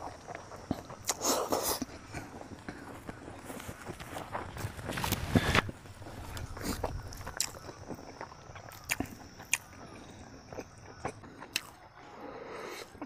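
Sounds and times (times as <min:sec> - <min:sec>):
wet chewing smacks: 0:00.0 - 0:03.3.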